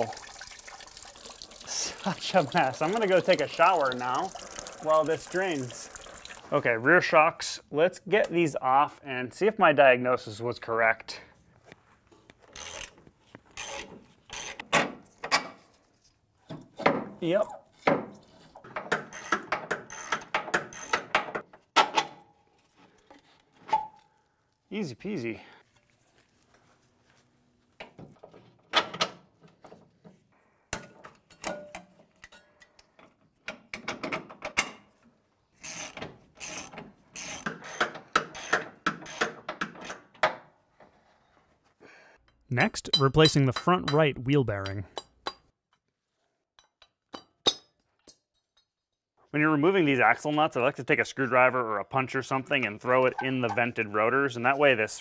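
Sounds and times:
ratchet wrench clicking: 12.5s - 12.9s, 35.6s - 39.3s.

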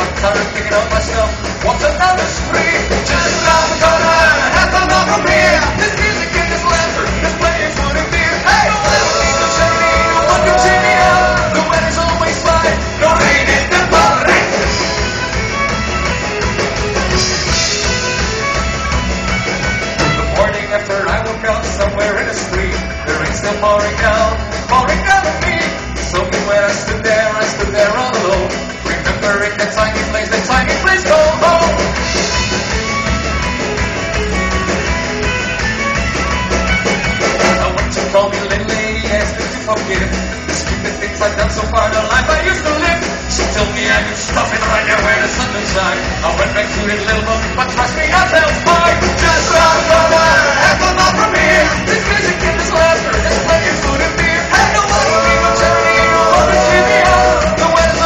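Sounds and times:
person singing: 0.0s - 15.1s, 20.0s - 32.1s, 37.3s - 58.0s
acoustic and electric guitars: 0.0s - 58.0s
drum kit: 0.0s - 58.0s
folk-rock band playing: 0.0s - 58.0s
fiddle: 14.5s - 21.2s, 32.2s - 37.7s.

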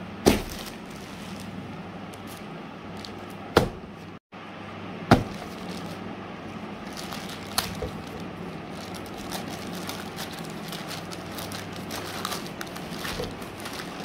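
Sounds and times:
plastic bag crinkling: 5.2s - 6.0s, 6.8s - 14.0s.

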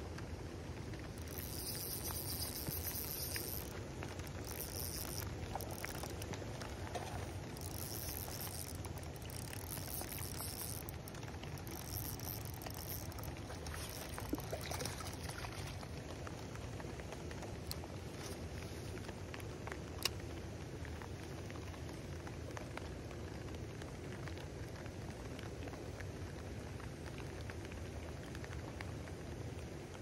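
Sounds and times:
rain pattering on a pond: 0.0s - 30.0s
fish splashing in a net: 1.2s - 15.9s.

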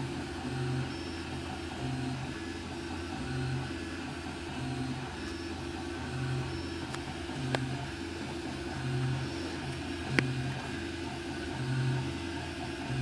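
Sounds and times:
stepper motors humming: 0.3s - 13.0s.

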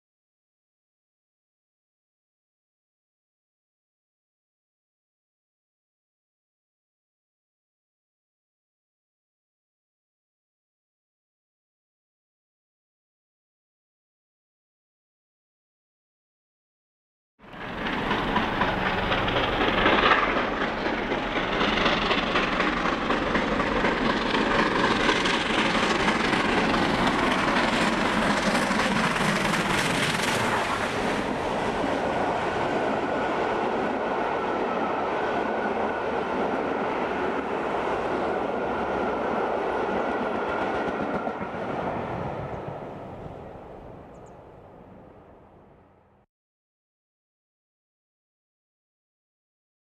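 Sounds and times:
train coaches running on rails: 17.4s - 45.7s
steam locomotive passing: 17.4s - 46.0s.

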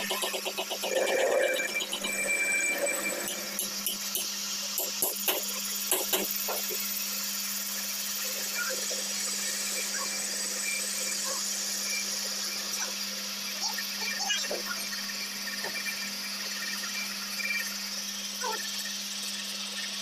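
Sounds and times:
metal lathe motor hum: 0.0s - 14.1s.

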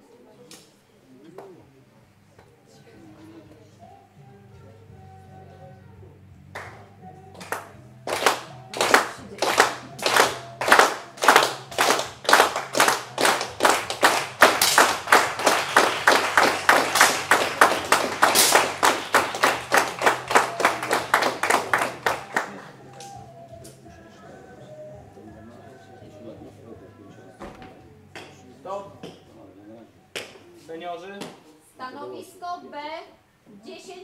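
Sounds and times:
audience clapping in unison: 6.6s - 6.8s, 7.4s - 23.2s, 30.2s - 30.4s.

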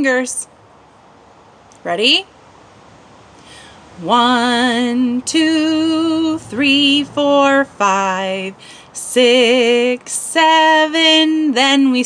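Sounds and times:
woman singing unaccompanied: 0.0s - 0.5s, 3.9s - 12.0s.

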